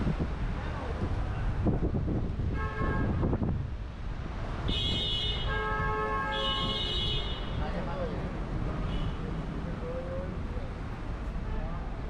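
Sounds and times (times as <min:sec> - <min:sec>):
car horns honking: 0:04.6 - 0:07.6.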